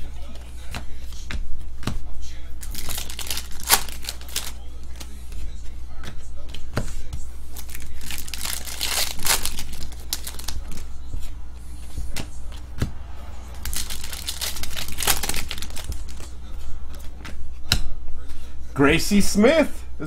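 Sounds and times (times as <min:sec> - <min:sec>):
foil wrappers crinkling and tearing: 0:02.6 - 0:05.2, 0:07.5 - 0:10.9, 0:13.6 - 0:16.3
cards shuffled by hand: 0:02.6 - 0:12.6, 0:13.5 - 0:17.4.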